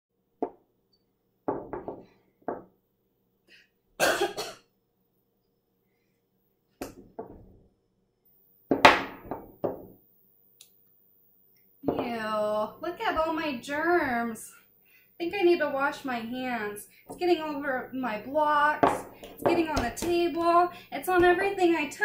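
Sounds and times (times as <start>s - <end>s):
wooden blocks knocking on table: 1.5s - 2.7s, 8.7s - 10.0s, 11.9s - 12.1s, 18.8s - 20.5s
woman coughing: 4.0s - 4.6s.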